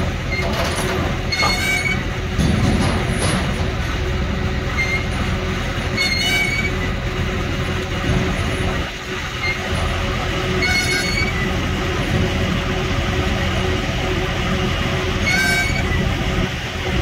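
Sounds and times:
diesel engine running: 0:00.0 - 0:17.0
high-pitched squeals: 0:04.7 - 0:05.3, 0:05.9 - 0:07.0, 0:09.3 - 0:11.6, 0:15.1 - 0:16.2.

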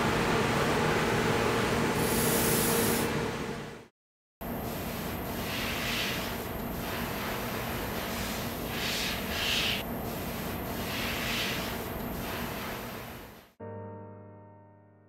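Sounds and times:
short hissing swells: 0:02.0 - 0:03.1, 0:05.4 - 0:09.8
steady hiss: 0:04.6 - 0:13.5.

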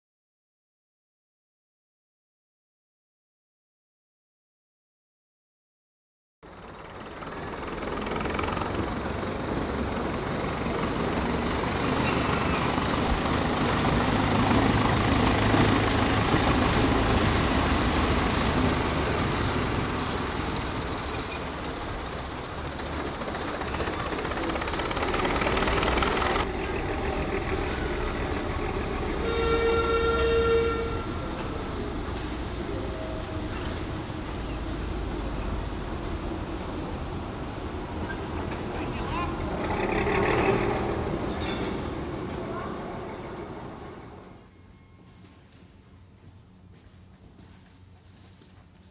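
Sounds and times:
locomotive rumbling on track: 0:06.4 - 0:48.9
locomotive horn toot: 0:27.7 - 0:31.6.

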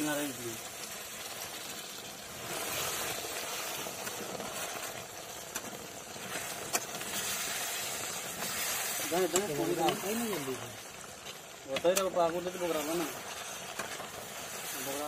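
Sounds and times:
water sizzling in hot oil: 0:00.0 - 0:15.0
ladle stirring curry: 0:02.4 - 0:14.8.

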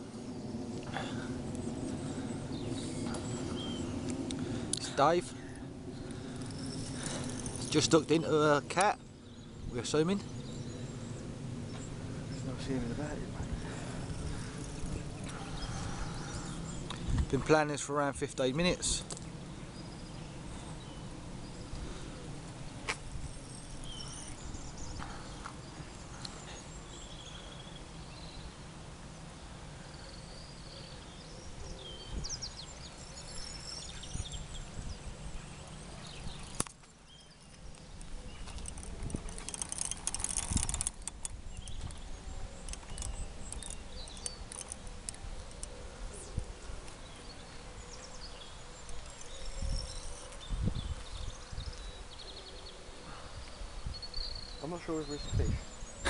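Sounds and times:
birds chirping: 0:00.0 - 0:56.0
wind on microphone: 0:10.4 - 0:17.5, 0:31.5 - 0:32.6, 0:38.0 - 0:45.5, 0:48.5 - 0:52.1, 0:55.2 - 0:56.0
fishing reel handling clicks: 0:38.6 - 0:41.4.

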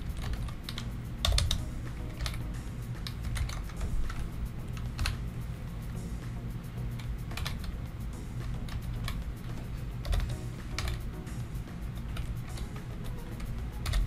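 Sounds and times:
computer keyboard typing: 0:00.0 - 0:05.2, 0:07.0 - 0:07.8, 0:08.4 - 0:11.2, 0:12.0 - 0:14.0.

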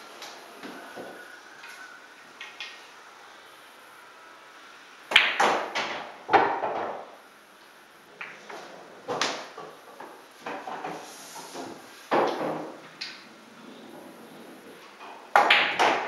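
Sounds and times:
cue striking ball: 0:05.1 - 0:07.1, 0:11.7 - 0:13.3, 0:15.3 - 0:16.0
pool balls clacking: 0:05.1 - 0:07.2, 0:08.2 - 0:16.0.

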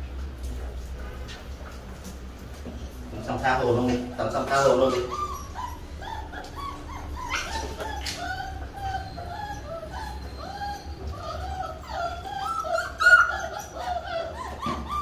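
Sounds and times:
puppies whining: 0:02.8 - 0:15.0.

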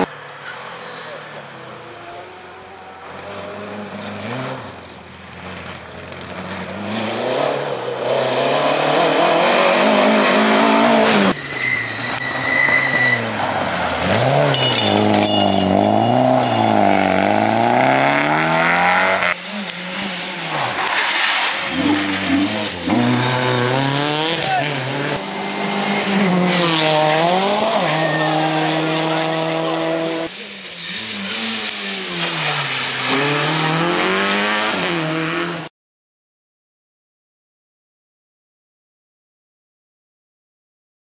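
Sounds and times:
rally car engine revving: 0:00.0 - 0:35.7
tyres on gravel: 0:09.8 - 0:28.6.

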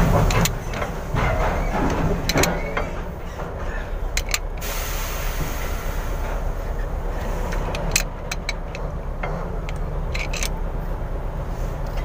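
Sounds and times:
steady low rumble: 0:00.0 - 0:12.0
wrench metal clicks: 0:04.2 - 0:04.6, 0:07.5 - 0:08.9, 0:09.6 - 0:10.6.

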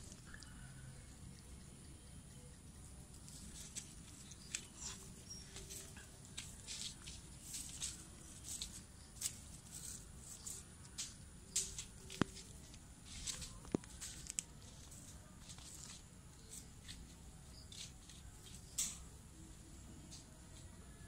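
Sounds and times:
kittens scratching and rustling: 0:03.1 - 0:19.2.

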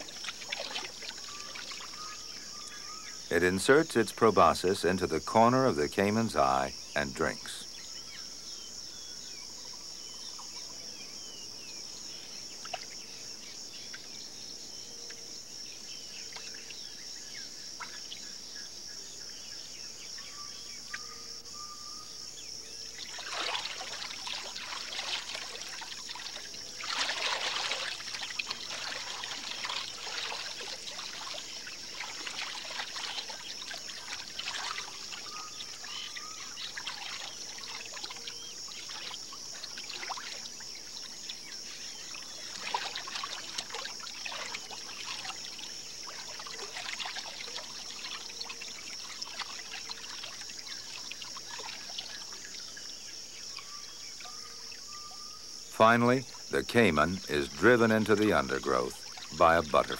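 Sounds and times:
water sloshing and splashing: 0:00.0 - 0:03.0, 0:23.0 - 0:54.4, 0:57.5 - 0:59.9
insect chorus: 0:00.0 - 0:59.9.

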